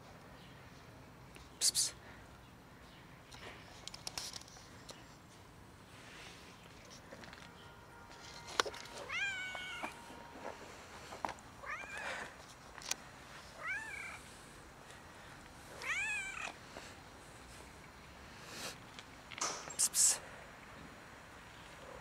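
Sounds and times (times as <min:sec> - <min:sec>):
cat meowing: 0:09.1 - 0:09.9, 0:11.6 - 0:12.0, 0:13.6 - 0:14.2, 0:15.8 - 0:16.5.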